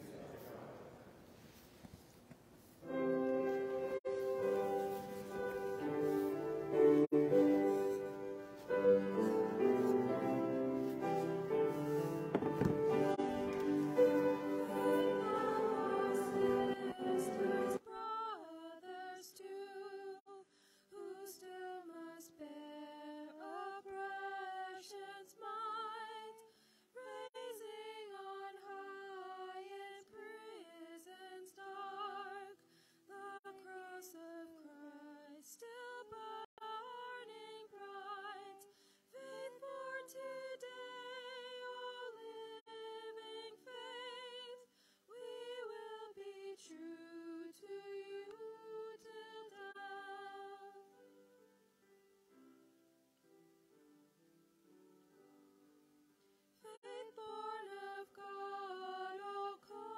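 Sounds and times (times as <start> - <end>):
person singing a hymn: 2.8 - 51.1, 56.6 - 59.9
singer breathing: 20.5 - 20.9, 26.5 - 26.9, 32.6 - 33.1, 38.7 - 39.1, 44.7 - 45.1.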